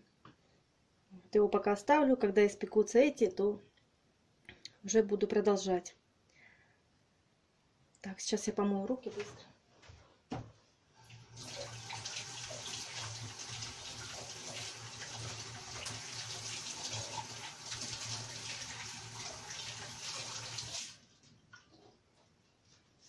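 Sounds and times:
tap water running into sink: 11.1s - 21.0s.

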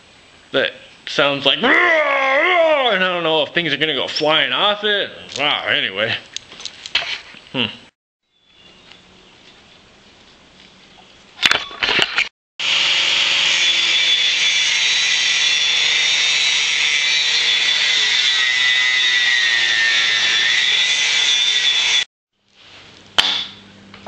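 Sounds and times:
power tool screeching on metal: 12.6s - 22.1s.

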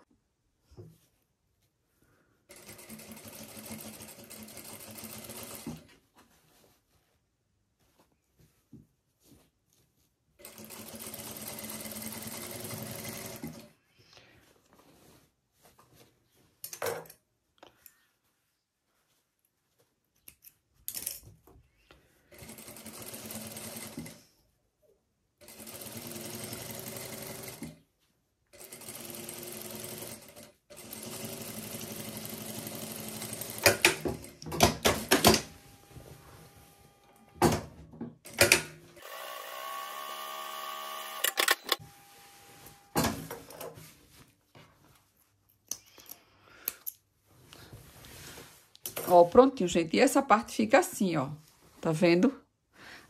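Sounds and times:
sewing machine stitching: 2.5s - 5.9s, 10.4s - 13.7s, 22.4s - 24.2s, 25.4s - 27.8s, 28.6s - 35.9s, 38.3s - 41.8s
fabric rustling: 5.8s - 10.5s, 13.9s - 16.6s, 17.2s - 20.8s, 42.0s - 45.6s, 47.1s - 49.6s.

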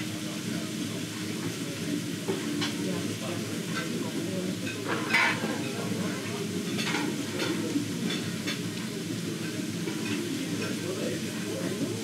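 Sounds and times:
steady background noise: 0.0s - 12.0s.

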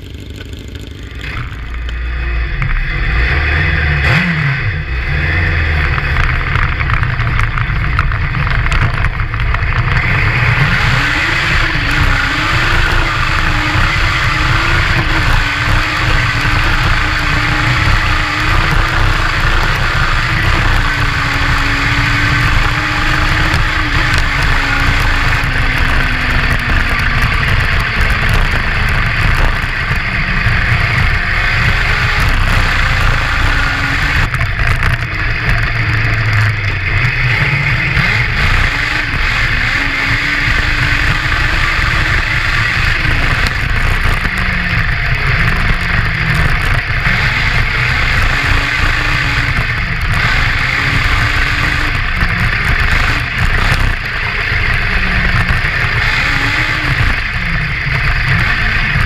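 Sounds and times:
low rumbling wind and road noise: 0.0s - 59.0s
motorcycle engine revving: 0.0s - 59.0s.

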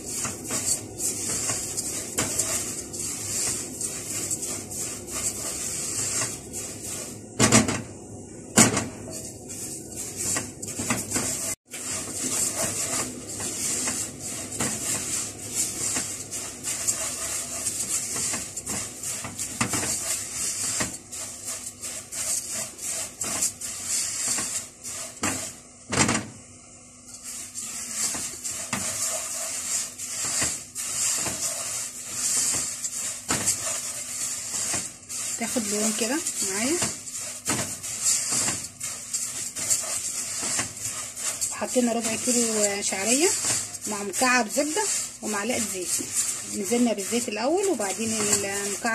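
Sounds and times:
spatula scraping strands: 0.0s - 7.7s, 8.7s - 25.7s, 27.1s - 48.9s
noodles sizzling in pot: 0.0s - 48.9s.

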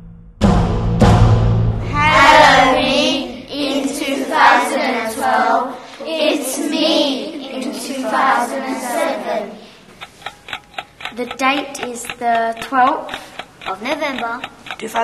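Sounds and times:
young voices singing: 1.8s - 9.9s.

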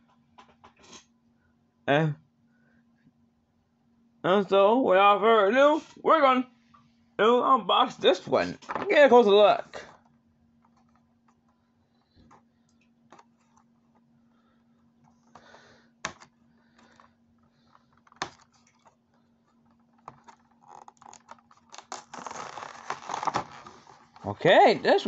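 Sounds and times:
faint steady hum: 0.0s - 25.0s
packaging rustling and scraping: 16.8s - 25.0s.

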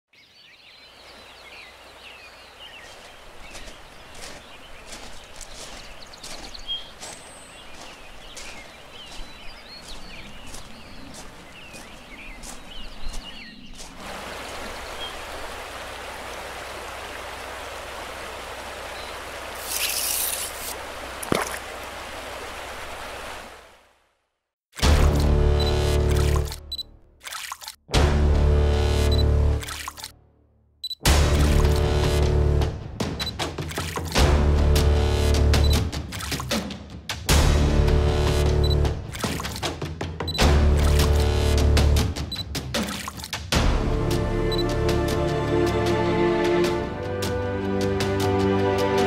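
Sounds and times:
birds calling: 0.1s - 23.4s
flowing river water: 0.3s - 24.2s, 24.8s - 27.8s, 29.5s - 30.1s, 31.1s - 32.4s, 33.0s - 36.6s, 37.4s - 49.0s.

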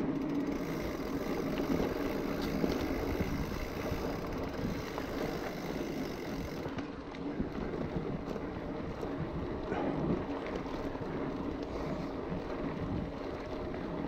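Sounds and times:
bike tyres rumbling on dirt trail: 0.0s - 14.0s
faint bike clicks: 0.0s - 14.0s.

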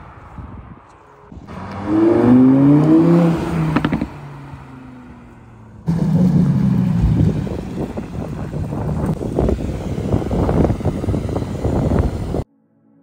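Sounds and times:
second car engine at low revs: 1.3s - 12.5s
car engine revving hard: 1.5s - 4.8s, 5.8s - 12.4s
engine exhaust cracks: 5.8s - 12.4s.

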